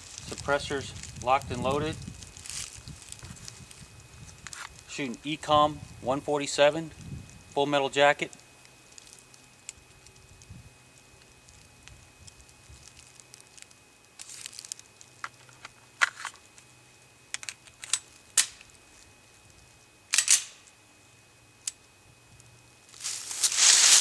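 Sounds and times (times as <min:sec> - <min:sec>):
pistol metallic clicks and clacks: 0:20.1 - 0:20.6.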